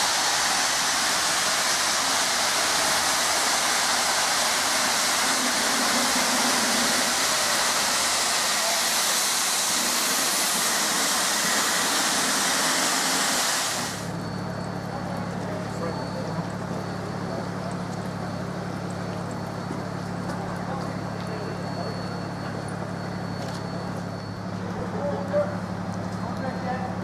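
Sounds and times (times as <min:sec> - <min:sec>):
loud rushing hiss: 0:00.0 - 0:14.1.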